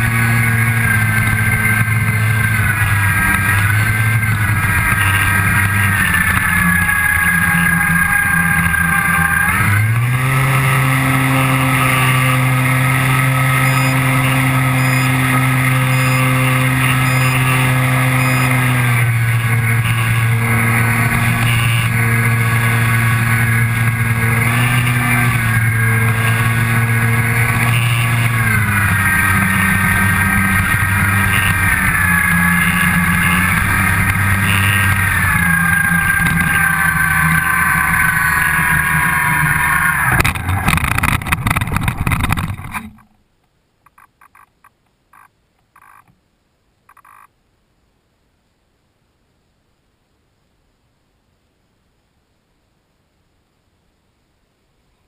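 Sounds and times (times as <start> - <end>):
model airplane motor whine: 0.0 - 42.8.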